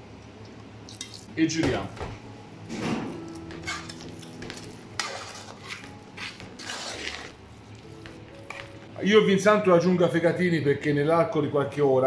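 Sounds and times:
metal spoon stirring in metal pot: 3.4s - 7.4s.

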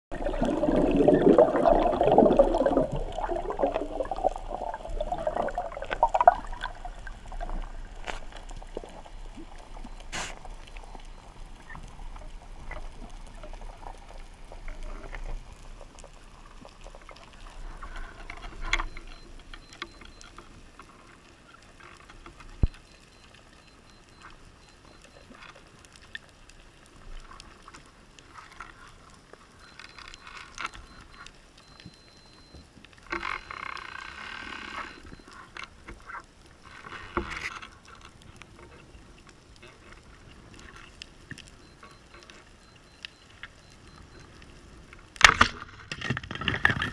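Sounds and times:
faint underwater crackling: 0.1s - 46.9s
underwater clicks and knocks: 45.2s - 46.9s.

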